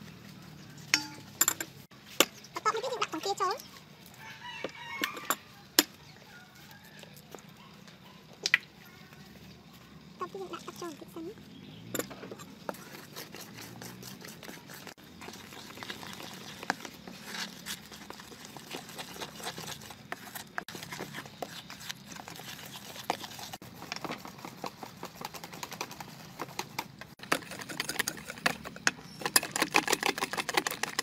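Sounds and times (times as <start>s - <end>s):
hand squelching wet batter: 12.5s - 26.1s.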